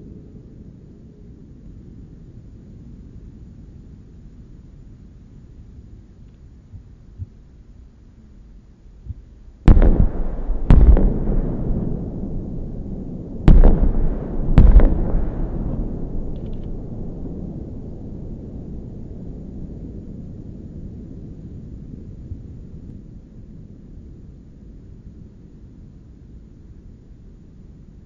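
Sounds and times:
faint firework pops: 0:09.1 - 0:12.1, 0:13.5 - 0:16.9
firework shells bursting: 0:09.7 - 0:17.3.

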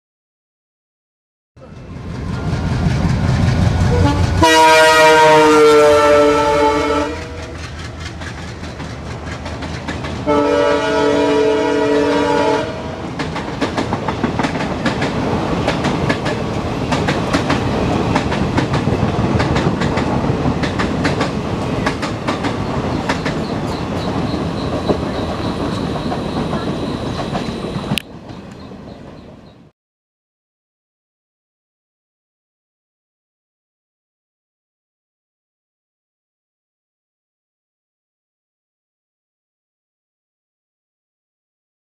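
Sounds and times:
locomotive horn blasts: 0:03.9 - 0:07.6, 0:10.2 - 0:13.2
train wheels clicking over rail joints: 0:07.1 - 0:10.3, 0:13.0 - 0:29.4.

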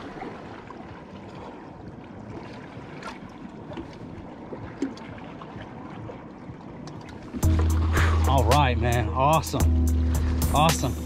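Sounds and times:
water lapping against boat hull: 0:00.0 - 0:11.0.

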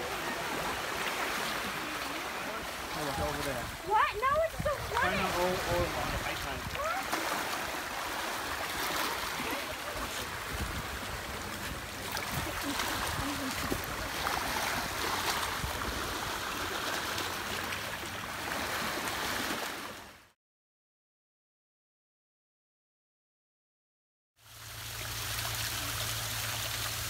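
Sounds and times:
small waves splashing over rocks: 0:00.0 - 0:20.1
wind rumble on microphone: 0:10.0 - 0:16.4.

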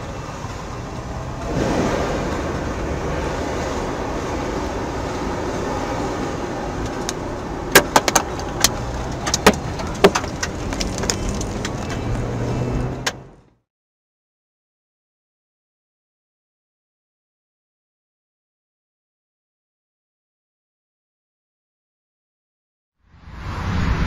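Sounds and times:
car driving noise from inside: 0:00.0 - 0:13.6
objects ticking against car: 0:06.8 - 0:13.5.

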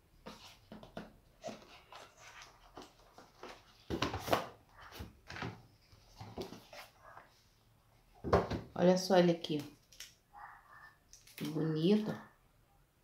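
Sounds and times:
cardboard and plastic rustling: 0:00.2 - 0:07.2.

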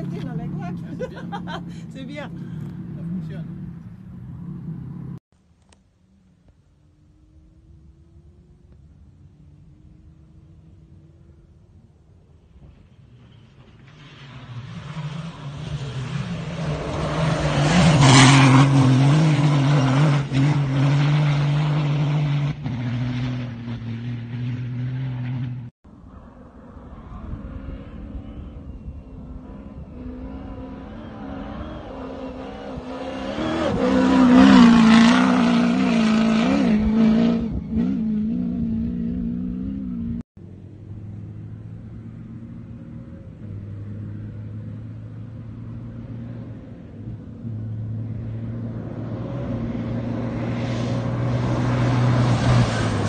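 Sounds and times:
rally car engines racing past: 0:12.4 - 0:40.2, 0:40.9 - 0:53.0.

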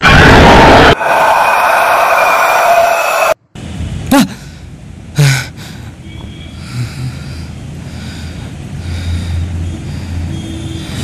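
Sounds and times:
quiet breathing: 0:05.4 - 0:11.0.

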